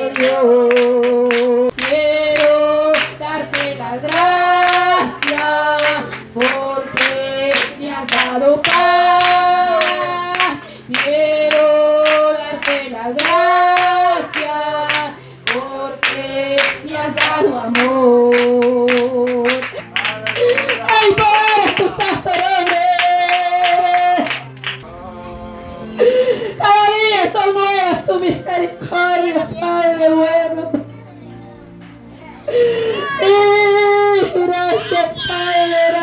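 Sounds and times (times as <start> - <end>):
woman singing amplified: 0.0 - 19.8, 20.4 - 31.0, 32.5 - 36.0
congregation singing: 0.0 - 30.9, 33.2 - 36.0
hand clapping: 0.2 - 24.8, 31.8 - 32.0.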